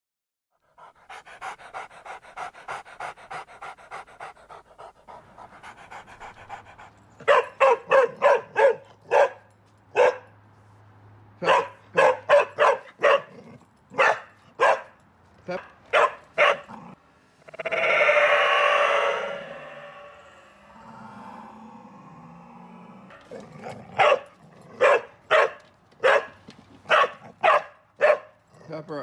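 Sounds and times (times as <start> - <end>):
dog panting: 0.6 - 7.8
dog barking: 7.2 - 10.3, 11.4 - 13.4, 14.0 - 15.0, 15.6 - 16.7, 24.0 - 28.4.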